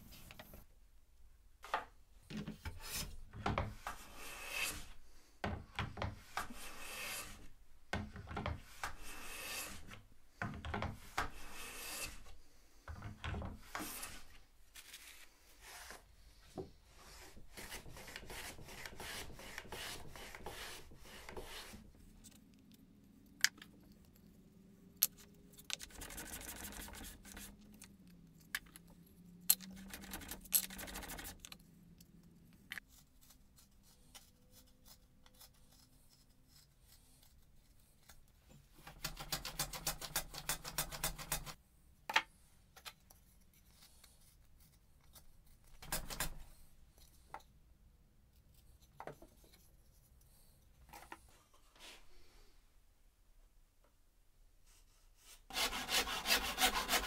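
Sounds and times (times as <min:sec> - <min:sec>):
blade scraping along wood: 0:03.8 - 0:05.0, 0:06.2 - 0:07.5, 0:08.6 - 0:10.0, 0:11.1 - 0:12.4, 0:17.0 - 0:21.9, 0:55.5 - 0:57.0.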